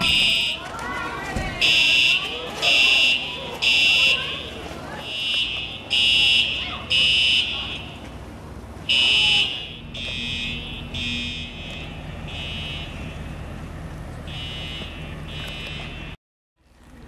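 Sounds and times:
fire alarm horn blasts: 0.0 - 0.7, 1.6 - 8.0, 8.8 - 13.4, 14.3 - 16.2.

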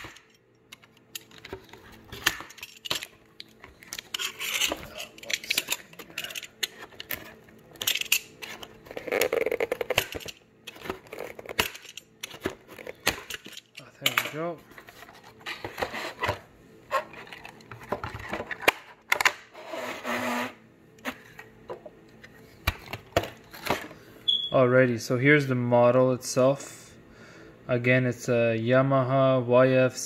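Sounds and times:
packaging rustling and scraping: 1.2 - 18.7.

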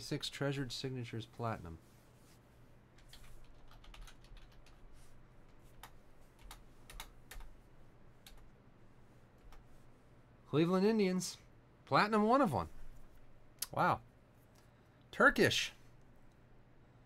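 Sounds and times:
typing on computer keyboard: 3.0 - 4.8, 5.7 - 7.5.

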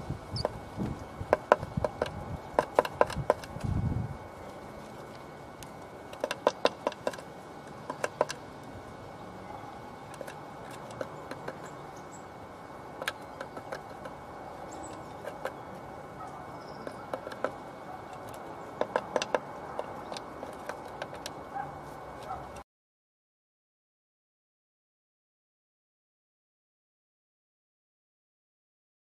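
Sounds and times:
bird pecking on wooden box: 0.4 - 3.8, 4.8 - 8.6, 10.1 - 11.8, 12.8 - 22.6.

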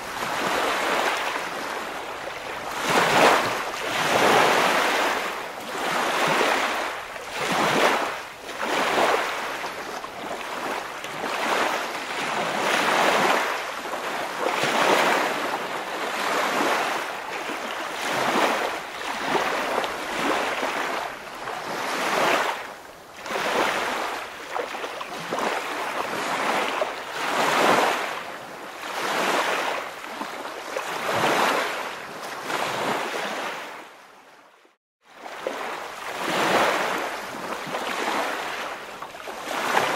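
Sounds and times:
waves washing: 0.0 - 34.0, 35.1 - 39.9.

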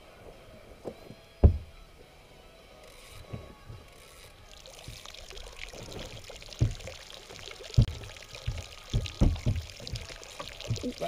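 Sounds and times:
dull thumps on boat: 0.9 - 1.8, 5.9 - 7.0, 7.8 - 11.0
urine trickling into water: 3.9 - 11.0.

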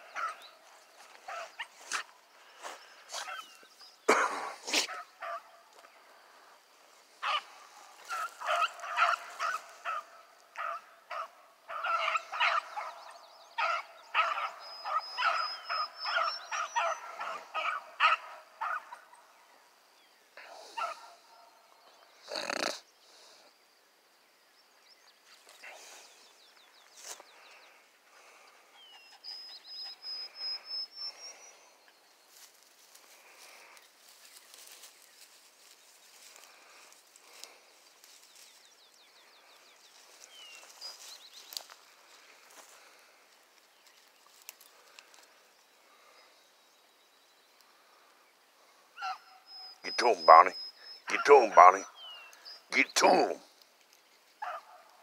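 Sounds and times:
hounds barking: 0.0 - 3.7, 4.7 - 5.7, 7.2 - 19.3, 20.4 - 21.6, 49.0 - 52.4, 54.4 - 55.0.

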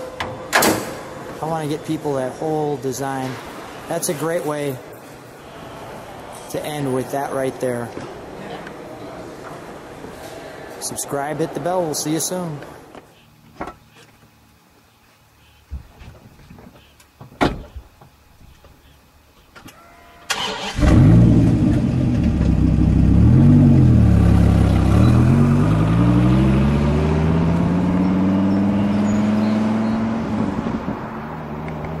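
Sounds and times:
car engine cranking and starting: 20.3 - 30.1
car engine running: 20.8 - 29.9.

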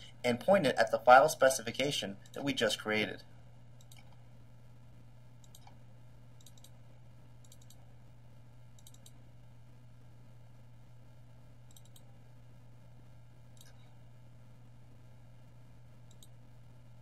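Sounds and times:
low electrical hum: 0.0 - 17.0
computer mouse double-clicks: 5.4 - 5.8, 6.4 - 6.8, 7.4 - 7.8, 8.8 - 9.2, 11.7 - 12.1, 16.1 - 16.3.

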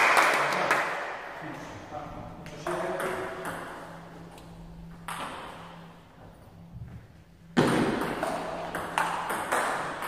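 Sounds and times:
faint steady hum: 0.0 - 10.0
table tennis ball hits: 2.6 - 3.8, 7.5 - 10.0.

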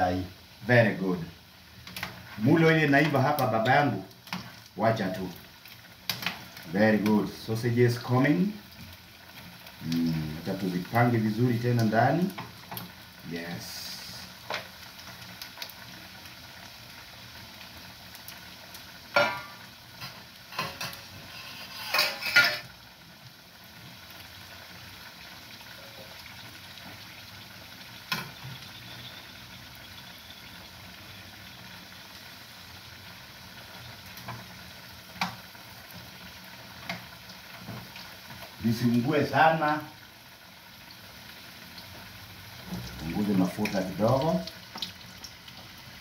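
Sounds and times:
sausages sizzling in frying pan: 0.0 - 46.0
utensils clinking against pan: 19.1 - 22.7.

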